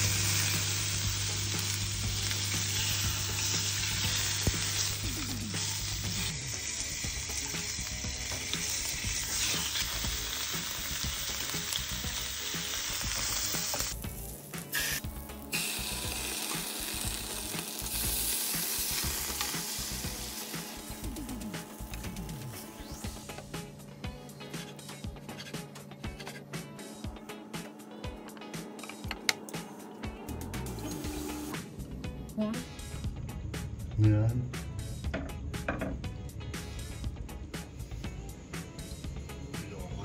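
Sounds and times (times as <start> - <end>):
steak sizzling in a pan: 0.0 - 23.2.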